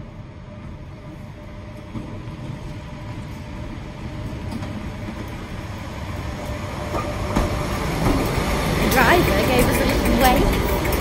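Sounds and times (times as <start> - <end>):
electric locomotive rumbling: 0.0 - 11.0.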